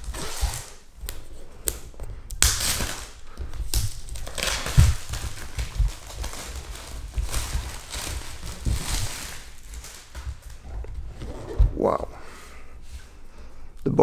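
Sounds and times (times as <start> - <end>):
plastic wrapping crackling: 0.0 - 11.1.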